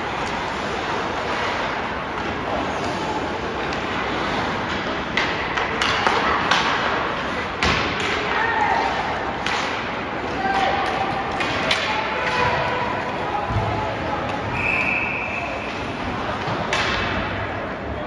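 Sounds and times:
puck and sticks knocking boards: 4.6 - 12.8, 16.3 - 17.4.

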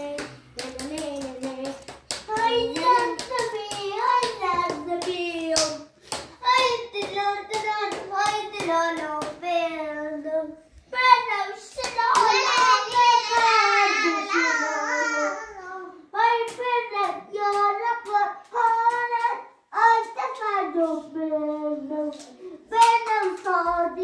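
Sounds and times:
hand claps: 0.0 - 9.5, 11.7 - 13.6, 16.4 - 19.4
girl singing: 0.0 - 24.0.

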